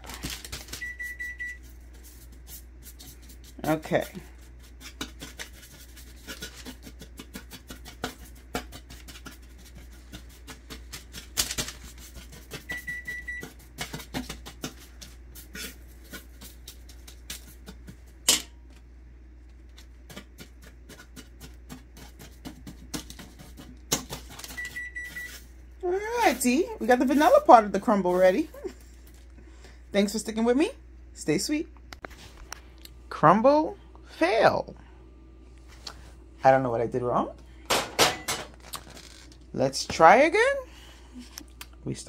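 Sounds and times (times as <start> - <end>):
fork scraping and tapping crumble: 4.6 - 18.4, 19.7 - 25.4.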